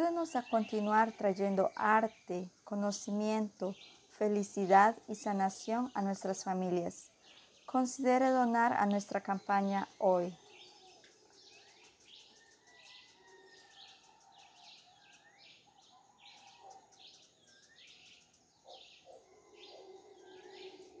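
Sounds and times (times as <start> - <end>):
faint bird chirping: 0.0 - 21.0.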